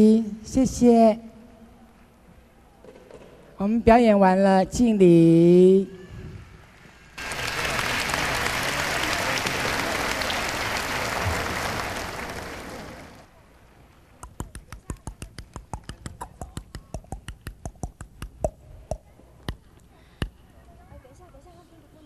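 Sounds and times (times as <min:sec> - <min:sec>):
audience applauding: 0:07.2 - 0:13.3
quick sharp taps: 0:14.2 - 0:19.6.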